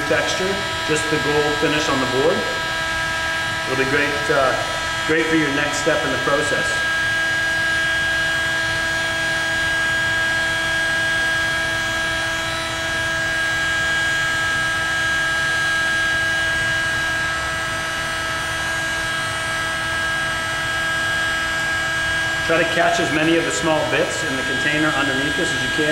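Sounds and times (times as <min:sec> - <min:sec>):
heat gun fan humming: 0:00.0 - 0:25.9.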